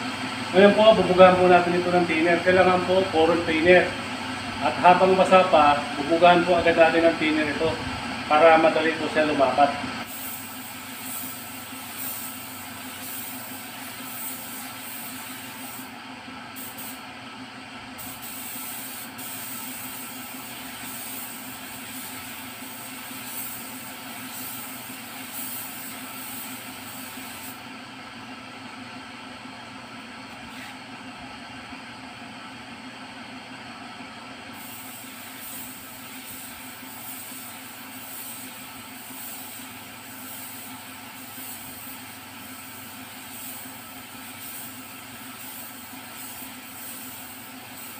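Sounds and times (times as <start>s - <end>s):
air spray gun hissing: 10.0s - 17.0s, 18.0s - 27.6s, 34.5s - 47.9s.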